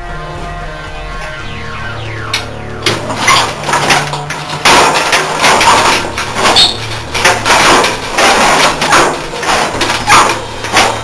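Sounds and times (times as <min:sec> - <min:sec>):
sheet metal panel rattling: 0:02.8 - 0:11.0.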